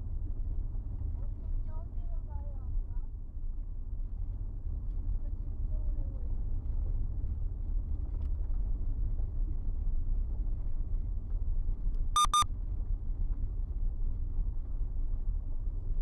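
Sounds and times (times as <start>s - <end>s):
high-pitched electronic beeps: 12.2s - 12.4s.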